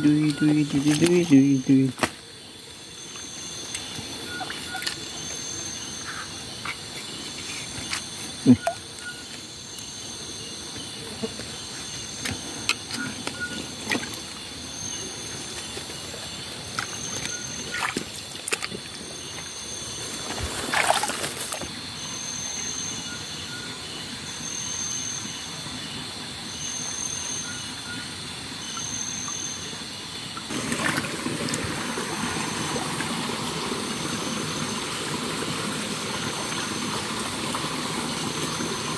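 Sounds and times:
night insects chirring: 0.0s - 38.9s
splashes in a stream: 15.7s - 19.0s, 20.1s - 21.8s, 30.4s - 38.9s.

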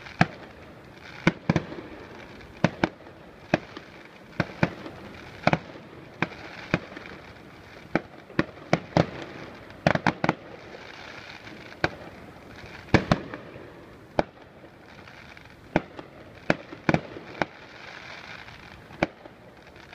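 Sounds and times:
fireworks bangs: 0.0s - 19.9s
steady hiss: 0.0s - 19.9s.

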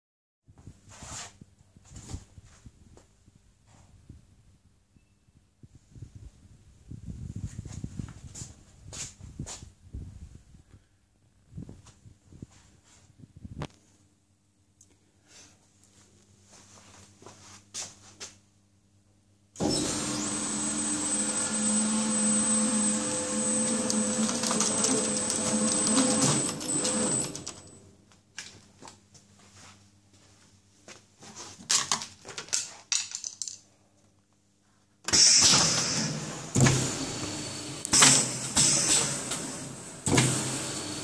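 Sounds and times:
conveyor machine whining: 19.6s - 27.9s, 35.1s - 41.0s.

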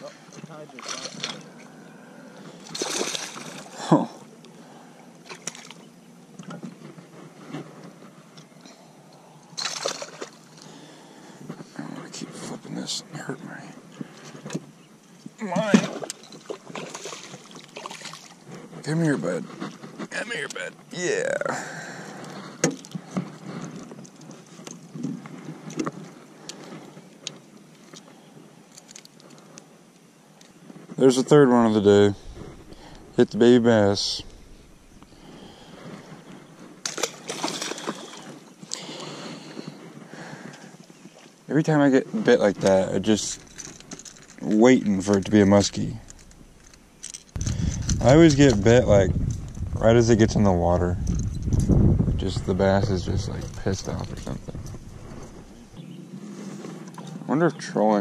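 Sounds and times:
water splashing: 0.0s - 1.7s, 2.6s - 4.0s, 9.6s - 10.5s, 15.5s - 18.4s, 36.9s - 38.4s
water lapping on hull: 0.0s - 3.9s, 15.5s - 18.8s, 31.5s - 49.7s
fish splashing at surface: 2.7s - 3.7s, 9.6s - 10.4s.

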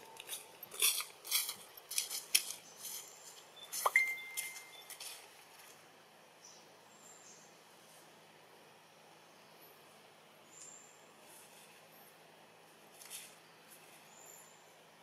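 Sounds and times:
dry leaves crunching: 0.0s - 5.7s
thin whistle-like squeak: 3.6s - 4.9s.

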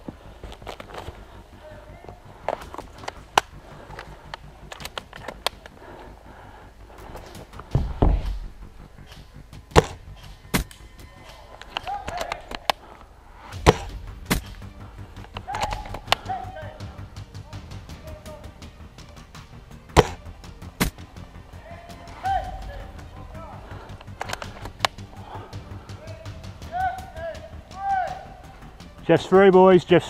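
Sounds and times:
rifle and kit clicks and knocks: 2.4s - 5.8s, 7.1s - 16.2s, 20.0s - 20.2s, 23.8s - 25.0s
heavy bump: 6.9s - 10.7s, 12.9s - 18.3s.

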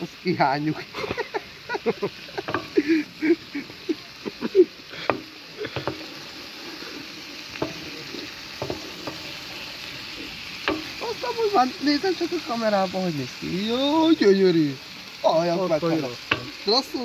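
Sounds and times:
livers sizzling in a pan: 0.0s - 17.0s
wooden spatula knocking on pan: 2.4s - 2.8s, 5.0s - 6.1s, 7.6s - 7.9s, 8.6s - 9.3s, 10.6s - 11.0s, 15.9s - 16.6s.

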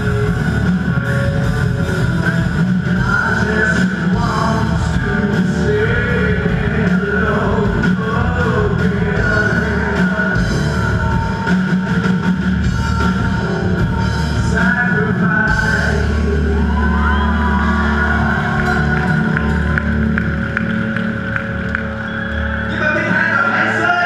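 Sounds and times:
drum kit: 0.0s - 22.4s
electric guitars: 0.0s - 24.0s
live rock band: 0.0s - 24.0s
person singing: 2.8s - 19.7s.

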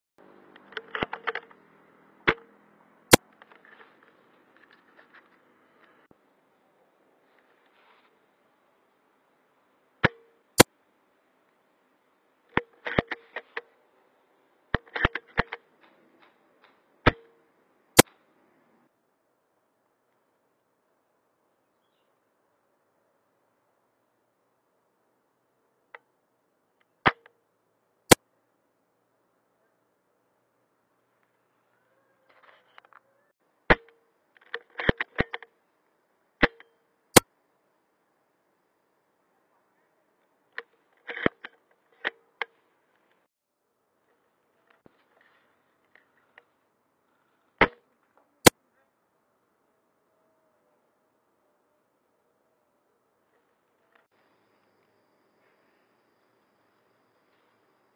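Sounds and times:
metallic bolt clicks: 0.6s - 1.6s, 12.6s - 13.7s, 33.7s - 35.5s.

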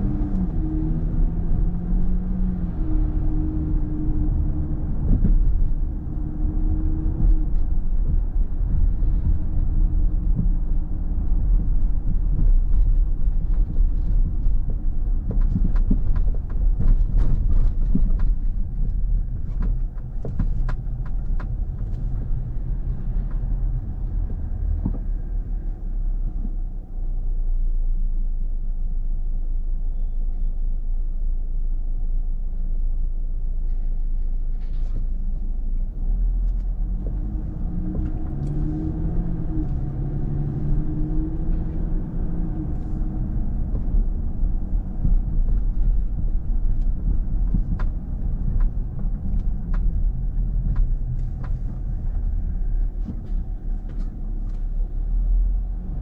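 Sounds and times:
car engine and road rumble: 0.0s - 56.0s
sharp clicks and knocks: 11.6s - 25.2s, 42.5s - 54.7s.

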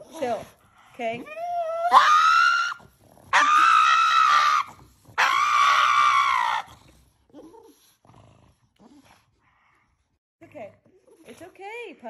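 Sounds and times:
dog screaming: 1.6s - 6.7s.

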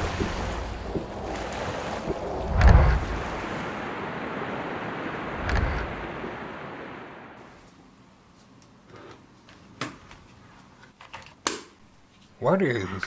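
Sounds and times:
surf: 0.0s - 7.5s
wind: 0.0s - 7.9s.

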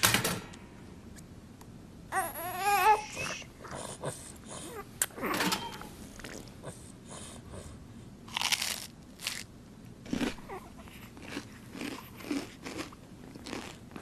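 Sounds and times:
woman crunching toast: 8.3s - 9.5s, 10.1s - 10.5s, 11.2s - 13.8s.

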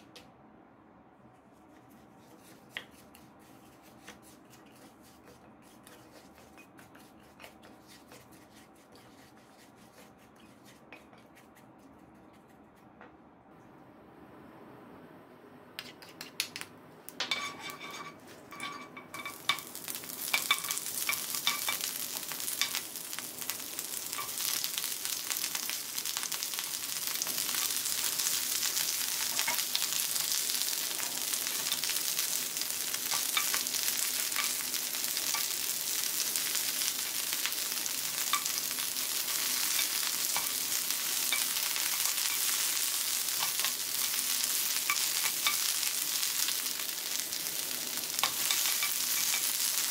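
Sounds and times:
spatula scraping pan: 2.2s - 11.5s, 17.2s - 22.8s, 36.4s - 46.2s
vegetables sizzling in a frying pan: 17.3s - 49.9s.

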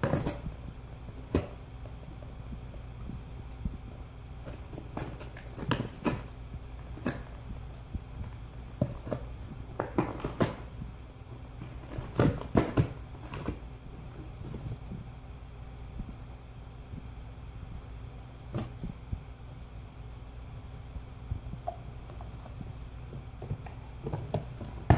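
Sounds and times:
dog tearing cardboard: 8.8s - 10.8s, 11.6s - 13.6s.

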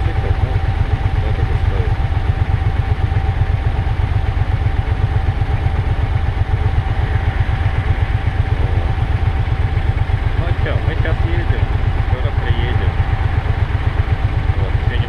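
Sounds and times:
motorcycle engine idling: 0.0s - 15.0s
thin steady whine: 0.0s - 15.0s.

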